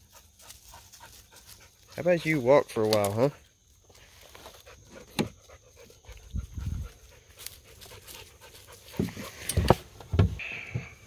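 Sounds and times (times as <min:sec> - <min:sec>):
dog panting: 0:00.0 - 0:02.1, 0:04.6 - 0:09.5.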